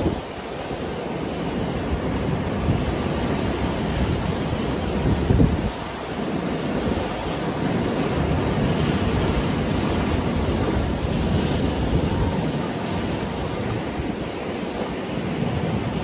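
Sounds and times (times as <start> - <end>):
sea surf breaking over rocks: 0.0 - 16.0.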